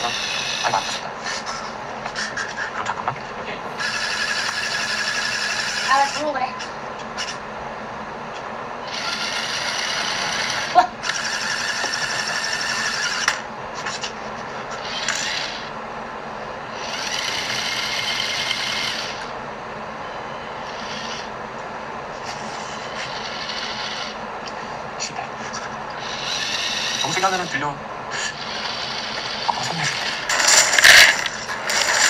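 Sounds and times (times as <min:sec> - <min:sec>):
electric motors whirring through gears: 0:00.0 - 0:01.5, 0:03.7 - 0:07.4, 0:08.8 - 0:15.8, 0:16.7 - 0:19.4, 0:20.4 - 0:21.4, 0:22.2 - 0:24.6, 0:25.9 - 0:32.0.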